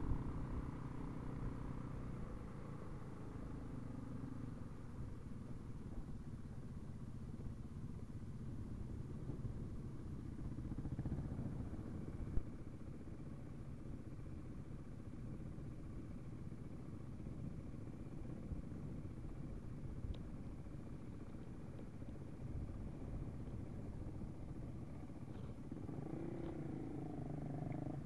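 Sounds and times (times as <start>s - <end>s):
dirt bike engine running: 4.4s - 28.0s.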